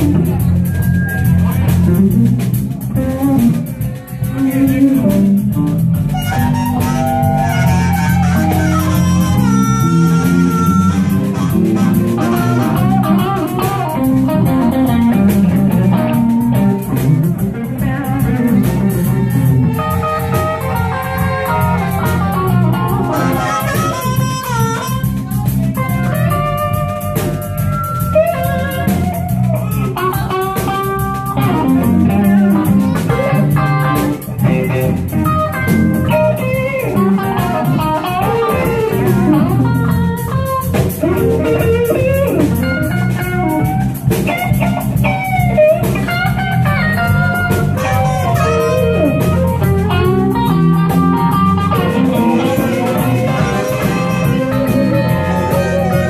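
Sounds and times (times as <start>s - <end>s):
blues-rock band playing: 0.0s - 56.0s
harmonica: 6.1s - 13.4s, 19.8s - 25.4s, 46.6s - 56.0s.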